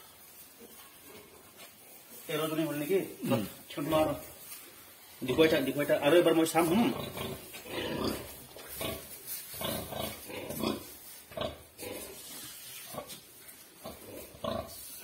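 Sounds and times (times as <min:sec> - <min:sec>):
pigs grunting: 0:06.6 - 0:12.3, 0:13.8 - 0:14.9.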